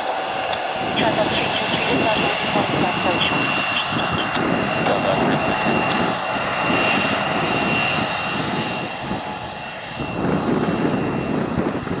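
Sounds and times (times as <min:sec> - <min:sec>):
jet engines rumbling: 0:00.0 - 0:12.0
thin high engine whine: 0:00.0 - 0:12.0.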